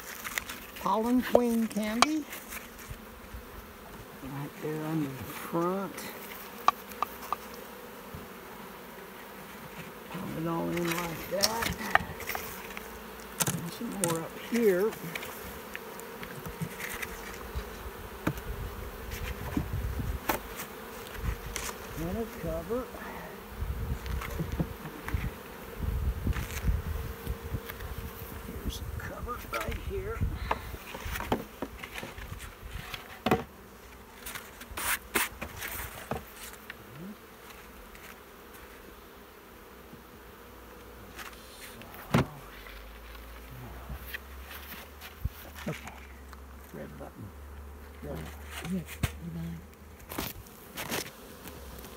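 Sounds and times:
bees buzzing: 0:00.0 - 0:51.9
hive box knocks and scrapes: 0:09.2 - 0:22.6, 0:24.0 - 0:28.4, 0:29.6 - 0:33.6, 0:34.2 - 0:36.7, 0:42.0 - 0:42.4, 0:48.5 - 0:49.2, 0:50.0 - 0:51.9.

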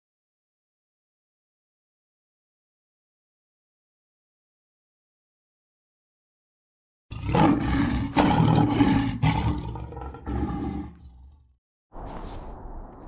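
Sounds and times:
lion roaring: 0:07.1 - 0:11.5.

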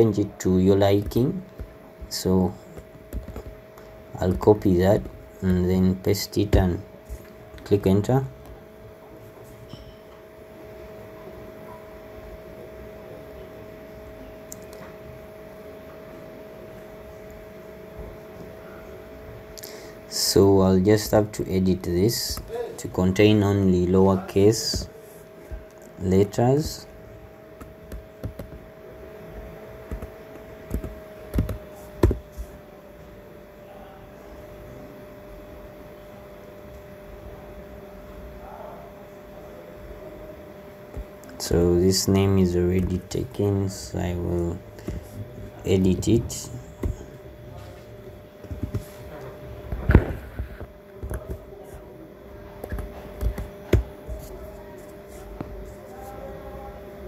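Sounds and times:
faint steady hum: 0:00.0 - 0:57.0
desk thumps: 0:02.8 - 0:03.6, 0:27.6 - 0:28.6, 0:29.8 - 0:32.5, 0:46.7 - 0:47.0, 0:48.4 - 0:48.9, 0:52.7 - 0:54.3
keyboard keystrokes: 0:27.6 - 0:28.5.

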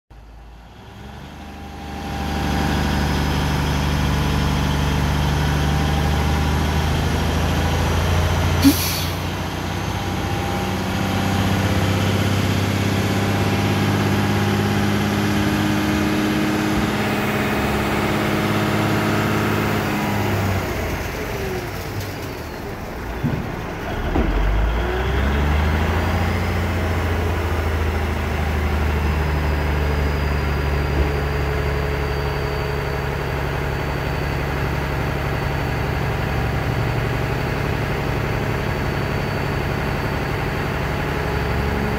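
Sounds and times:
dump truck engine droning: 0:00.2 - 0:41.9
brief sharp noise: 0:08.6 - 0:09.3.

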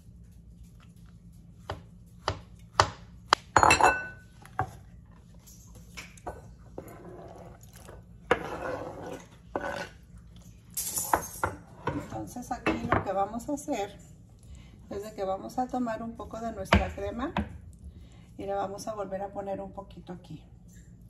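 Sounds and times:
knife chopping on wooden board: 0:01.6 - 0:03.5
knife clatter: 0:10.7 - 0:11.6.

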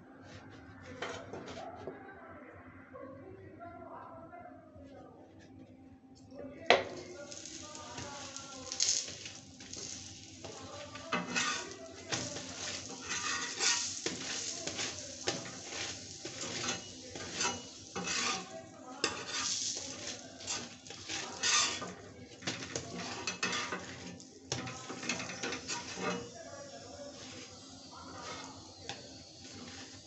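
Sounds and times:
flatbread sizzling in oil: 0:06.8 - 0:30.0
steel spatula scraping pan: 0:06.9 - 0:30.0.

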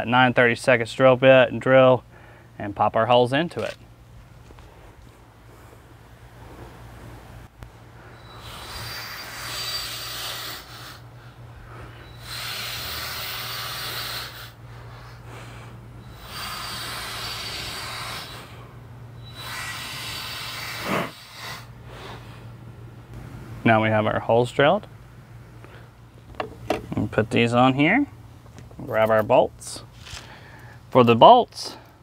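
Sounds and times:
cordless drill boring through metal: 0:16.1 - 0:18.4.

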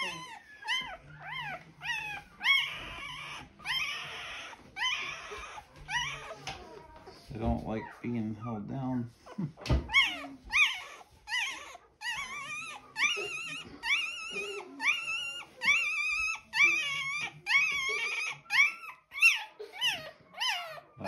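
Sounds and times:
puppy squealing: 0:00.0 - 0:21.0.

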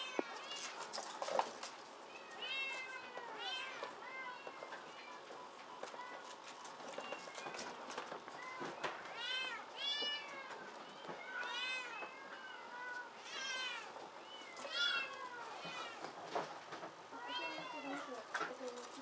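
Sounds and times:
kittens meowing: 0:02.1 - 0:05.2, 0:08.4 - 0:16.2, 0:17.1 - 0:18.3.

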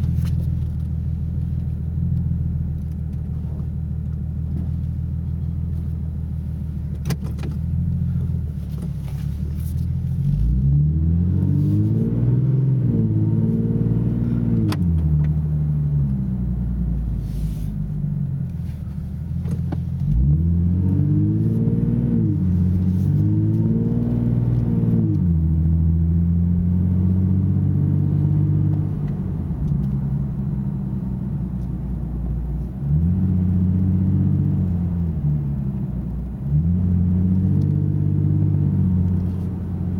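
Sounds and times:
car engine droning in cabin: 0:00.0 - 0:39.9
engine revving through gears: 0:10.0 - 0:16.3, 0:19.6 - 0:31.3, 0:32.8 - 0:39.9.

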